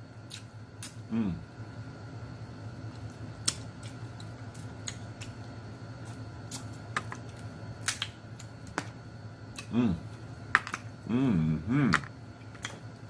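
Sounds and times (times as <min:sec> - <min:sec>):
steady low hum: 0:00.0 - 0:13.0
crab shell cracking: 0:07.8 - 0:08.9.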